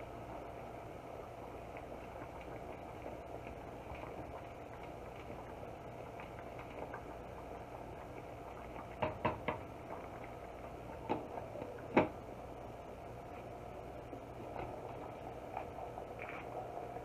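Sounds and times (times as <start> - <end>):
rice boiling in a saucepan: 0.0 - 17.0
wooden spoon knocking on pot: 9.0 - 9.7.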